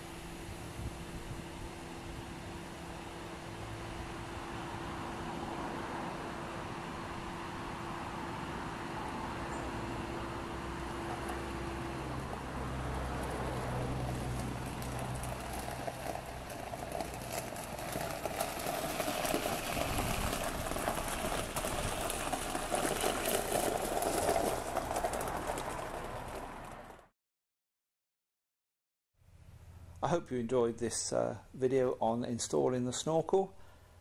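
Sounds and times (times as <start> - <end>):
car engine idling: 0.0 - 27.0
tyres crunching on gravel: 8.5 - 27.1.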